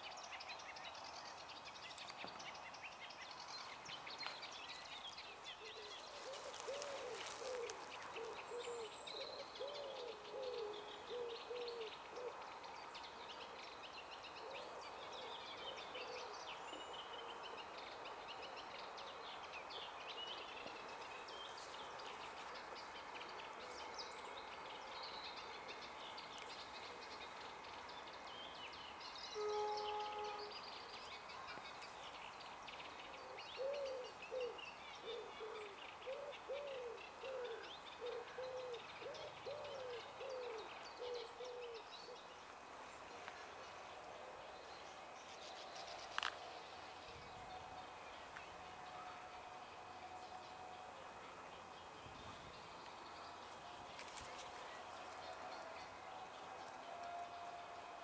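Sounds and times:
small birds chirping and trilling: 0:00.0 - 0:14.3.

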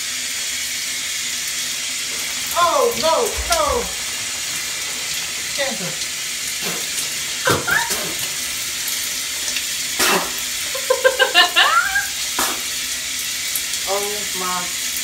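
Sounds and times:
shower spray hissing: 0:00.0 - 0:15.0
high-pitched wordless vocal cries: 0:11.4 - 0:12.2.

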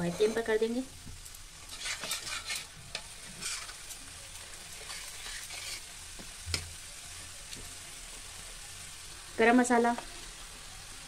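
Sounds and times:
spoon scraping iron pan: 0:00.0 - 0:00.6, 0:01.7 - 0:03.8, 0:04.8 - 0:05.9
paste sizzling: 0:00.0 - 0:11.0.

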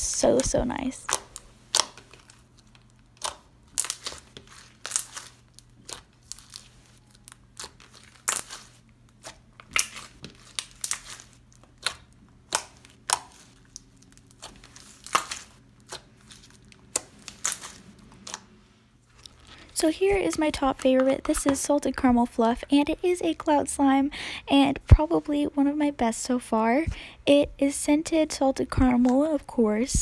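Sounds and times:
slime crackling and clicking: 0:00.1 - 0:06.6, 0:07.2 - 0:18.4.

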